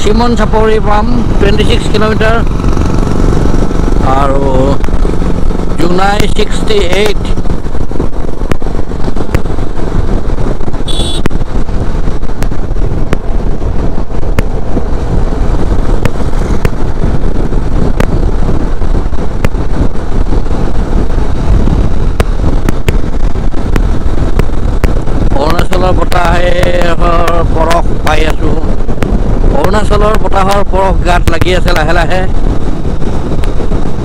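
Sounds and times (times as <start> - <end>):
motorcycle engine running: 0.0 - 34.0
road noise: 0.0 - 34.0
wind rush over microphone: 0.0 - 34.0.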